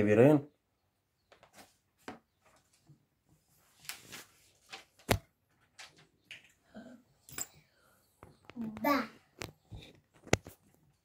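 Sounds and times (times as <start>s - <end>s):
small objects tapping and rustling: 4.7s - 6.6s, 8.2s - 11.0s.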